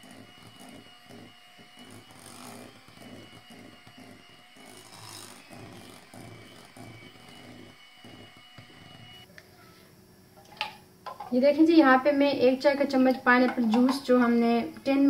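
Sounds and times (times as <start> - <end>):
beaters churning batter: 0.0 - 9.3
electric hand mixer whining: 0.0 - 9.3.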